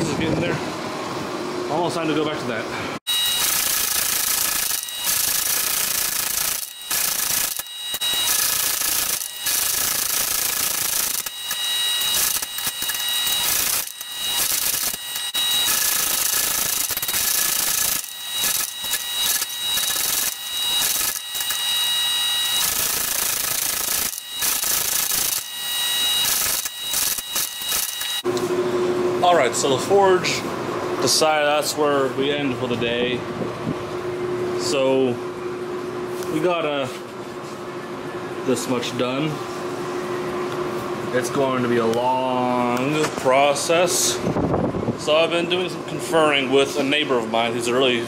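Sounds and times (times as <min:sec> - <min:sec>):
forging machine running: 0:03.1 - 0:28.3.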